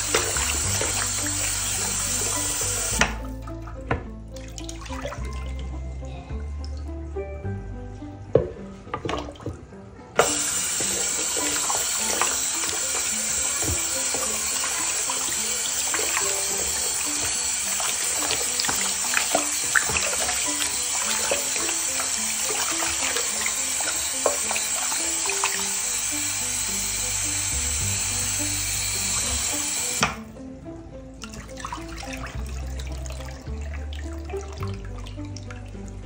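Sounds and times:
splashing and sloshing water: 0.0s - 5.8s, 8.4s - 25.7s, 31.2s - 36.0s
tap water running into bowl: 0.0s - 5.8s, 8.3s - 30.3s, 31.2s - 36.0s.

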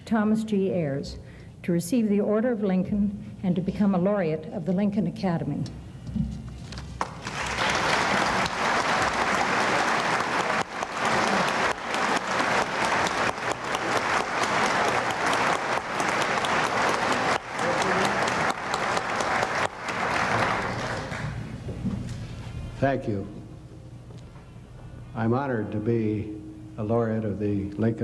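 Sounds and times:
audience applauding: 7.0s - 21.6s.

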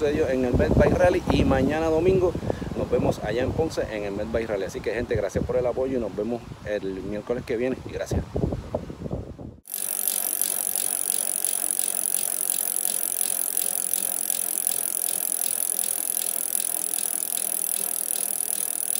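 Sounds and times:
rapid ticking and rattle: 9.7s - 18.9s.

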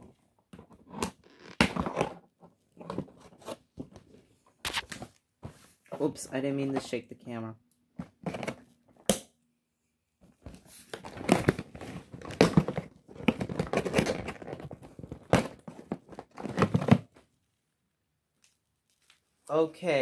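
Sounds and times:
packaging rustling and crinkling: 10.4s - 17.2s, 18.4s - 19.4s.

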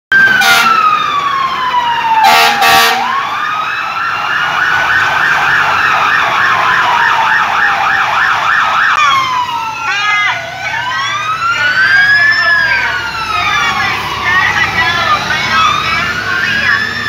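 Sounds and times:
fire truck siren wailing: 0.1s - 17.0s
siren warbling quickly: 0.1s - 17.0s
air horn blasts: 0.4s - 0.8s, 2.2s - 3.1s.

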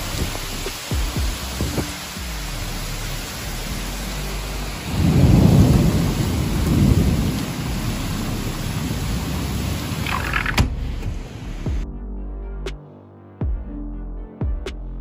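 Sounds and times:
heavy rain: 0.0s - 11.8s
deep rumble: 0.0s - 12.7s
strong storm wind: 4.8s - 11.6s.

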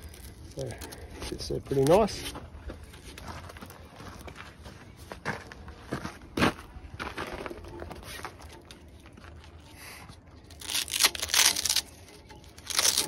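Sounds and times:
velcro strap ripping open: 10.5s - 13.0s.

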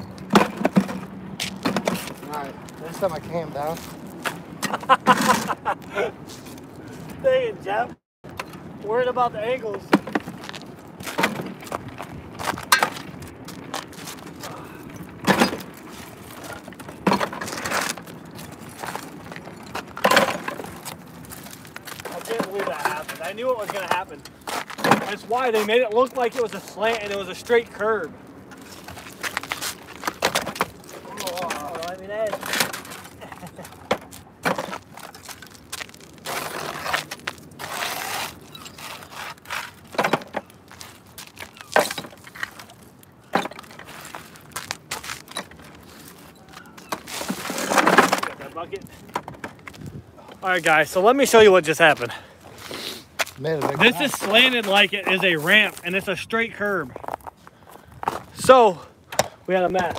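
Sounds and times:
scrap metal clanking and scraping: 13.9s - 27.4s, 43.3s - 49.5s
scrap metal scraping on concrete: 36.2s - 40.2s.

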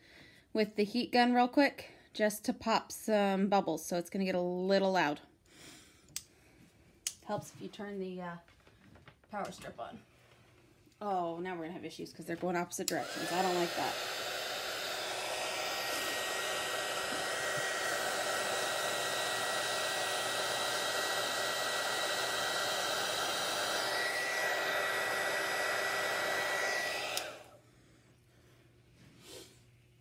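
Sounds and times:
heat gun blowing: 12.8s - 27.6s.

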